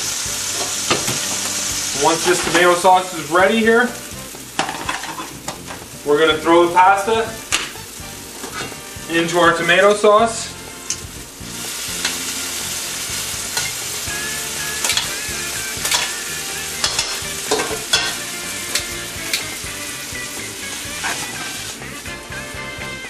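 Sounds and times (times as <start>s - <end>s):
sauce sizzling in pan: 0.0s - 23.0s
metal tongs clicking against pan: 12.0s - 12.2s, 14.8s - 15.1s, 15.8s - 16.1s, 16.8s - 19.5s.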